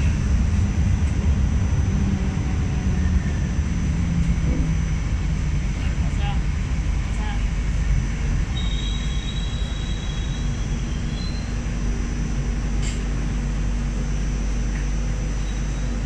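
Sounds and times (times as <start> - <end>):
faint high whine: 0.0 - 16.0
low steady hum: 0.0 - 16.0
train low rumble: 0.0 - 16.0.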